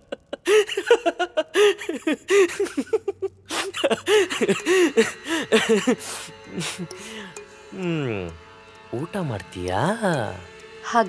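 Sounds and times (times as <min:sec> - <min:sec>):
man laughing hard: 0:00.0 - 0:07.0.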